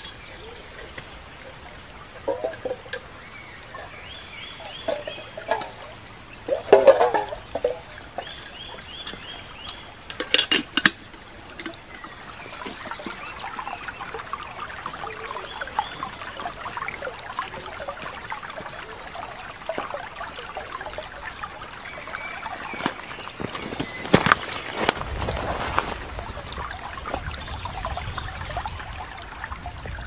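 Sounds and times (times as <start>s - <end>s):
stream babbling over stones: 0.0s - 30.0s
bird chirping: 2.2s - 10.0s.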